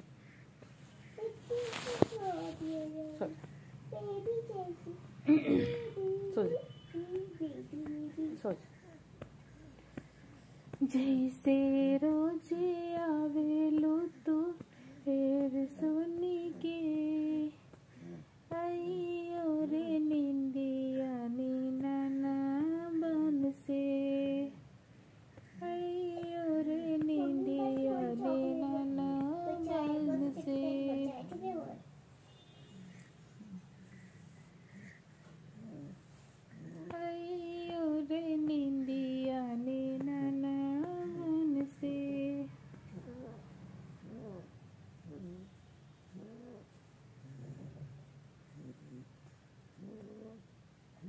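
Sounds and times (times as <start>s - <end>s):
woman humming a lullaby: 5.3s - 9.8s, 10.8s - 24.6s, 25.6s - 31.8s, 35.6s - 43.4s.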